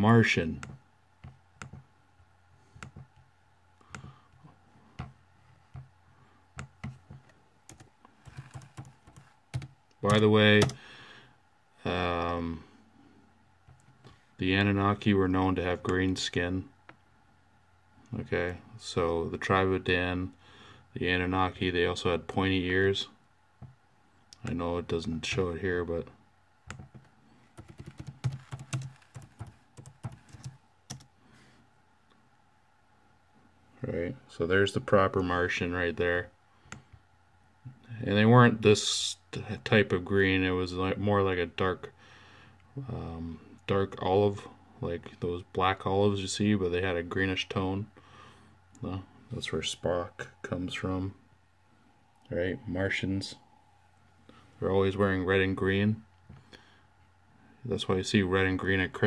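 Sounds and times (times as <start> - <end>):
faint low hum: 0.0 - 59.0
computer keyboard typing: 7.7 - 10.8, 26.7 - 31.1.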